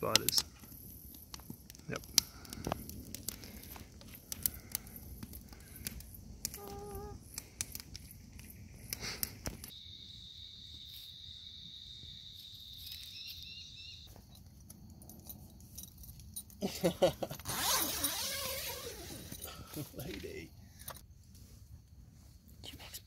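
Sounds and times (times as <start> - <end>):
high-pitched insect trill: 0.0 - 23.0
bird chirps: 9.7 - 14.4.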